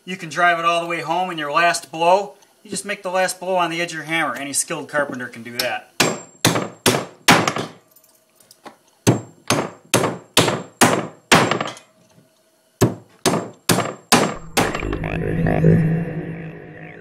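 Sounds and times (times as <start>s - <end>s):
hammers driving nails into wood: 6.0s - 7.8s, 9.1s - 11.8s, 12.8s - 14.3s
short music sting: 14.3s - 17.0s.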